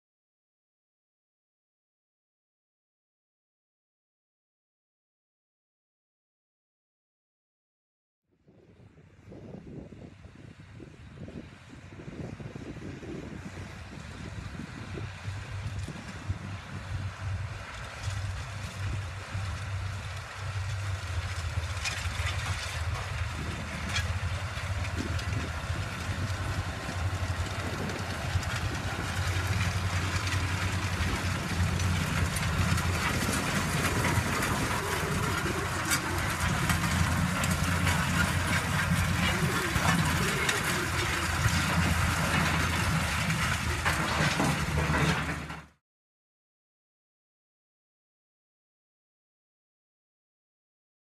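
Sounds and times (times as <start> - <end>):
tractor diesel engines under load: 10.2 - 45.8.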